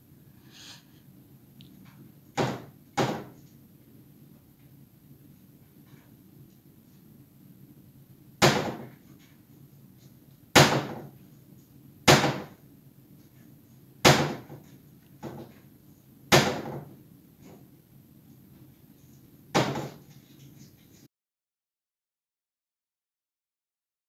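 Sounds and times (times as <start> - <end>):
cabinet doors slamming: 2.4 - 3.4, 8.4 - 8.9, 10.6 - 11.1, 12.1 - 12.5, 14.0 - 14.5, 16.3 - 16.9, 19.6 - 20.0.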